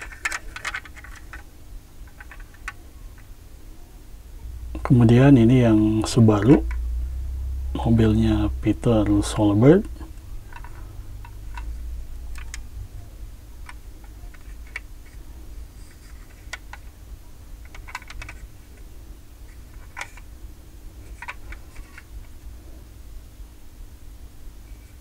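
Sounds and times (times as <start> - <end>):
low background hum: 0.0 - 25.0
model car clicking in hands: 17.7 - 18.4.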